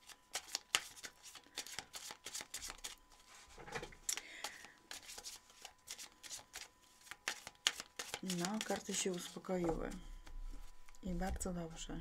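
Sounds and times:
cards being shuffled: 0:00.0 - 0:03.0, 0:04.4 - 0:09.4.

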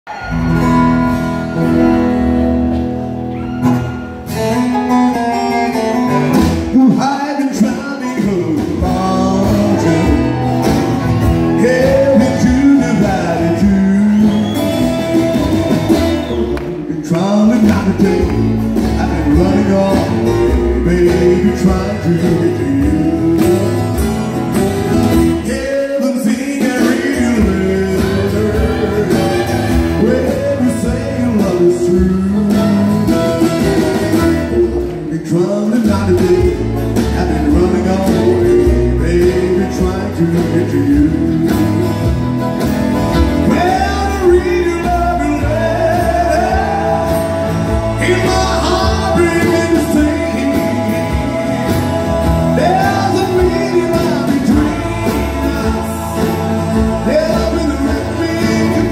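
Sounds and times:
strummed acoustic guitars: 0:00.1 - 0:58.9.

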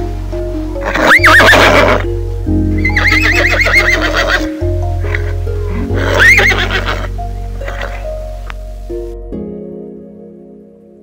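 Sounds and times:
background music with held notes: 0:00.0 - 0:11.0
horse whinnying: 0:00.8 - 0:02.1, 0:02.8 - 0:08.0.

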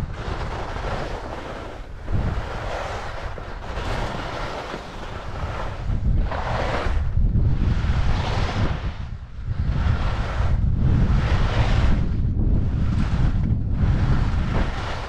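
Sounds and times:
skis sliding over snow: 0:00.0 - 0:15.0
wind buffeting microphone: 0:00.0 - 0:15.0.

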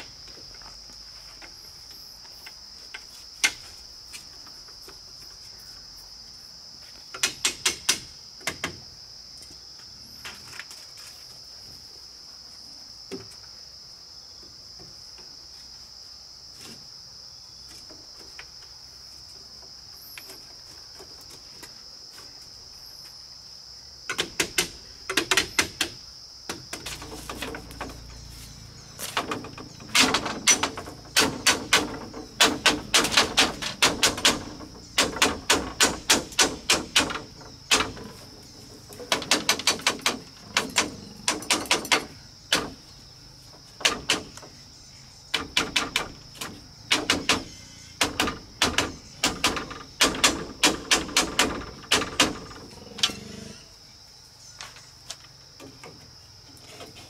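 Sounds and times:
high insect drone: 0:00.0 - 0:57.0
bamboo strips clattering: 0:24.2 - 0:44.6, 0:45.3 - 0:52.7.

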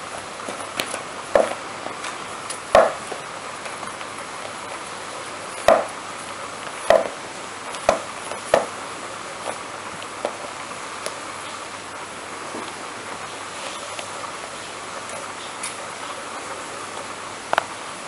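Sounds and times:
steady background hiss: 0:00.0 - 0:18.0
knocks and thumps of kitten playing: 0:00.4 - 0:01.6, 0:05.6 - 0:06.0, 0:06.8 - 0:08.8.

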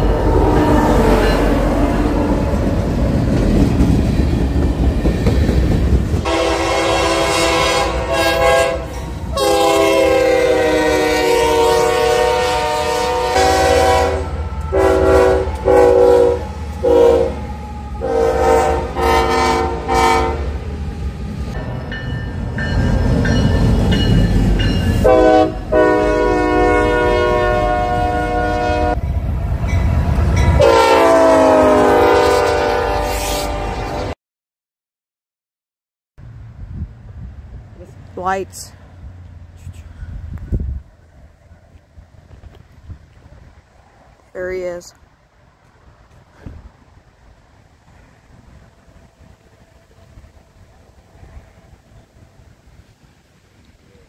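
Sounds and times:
locomotive air horns: 0:00.0 - 0:02.2, 0:06.2 - 0:20.6, 0:25.0 - 0:29.0, 0:30.6 - 0:34.2
rumble of engines and wheels: 0:36.2 - 0:54.0.

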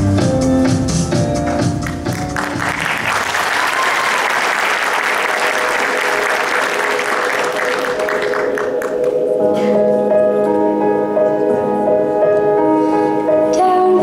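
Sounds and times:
dance music: 0:00.0 - 0:10.4
audience applauding: 0:01.8 - 0:09.2.

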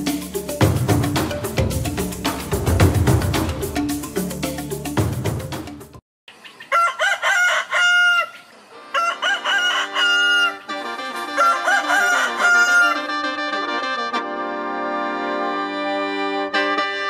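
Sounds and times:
music: 0:00.0 - 0:06.0, 0:09.4 - 0:17.0
rooster crowing: 0:06.7 - 0:10.7, 0:11.3 - 0:13.1.

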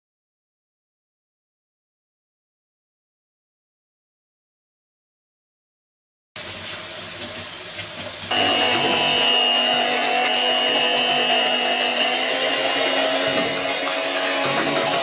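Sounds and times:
stand mixer running: 0:08.3 - 0:15.0.

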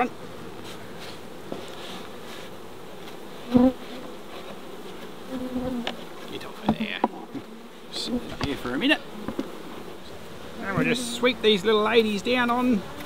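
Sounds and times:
bee droning past: 0:00.0 - 0:13.0
bees buzzing: 0:00.0 - 0:13.0.

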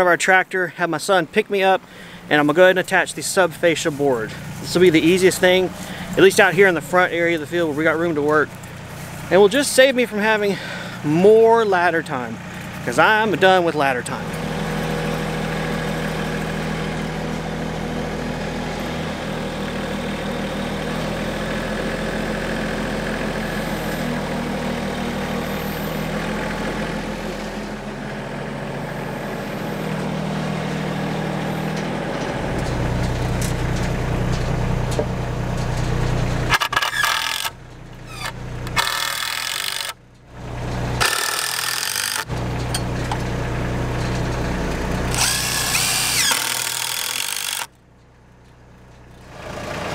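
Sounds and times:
tractor engine running: 0:00.0 - 0:49.9.

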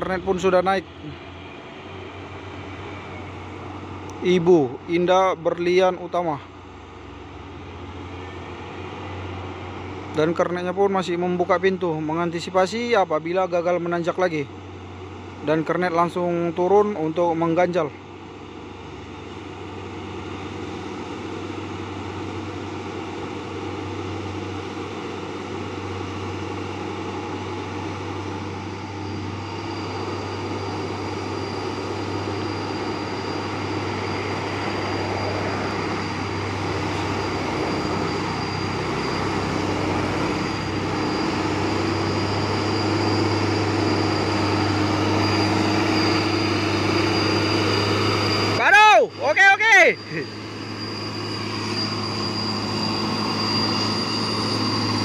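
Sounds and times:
diesel truck engine climbing: 0:00.0 - 0:55.0
thin high whine: 0:00.0 - 0:55.0.

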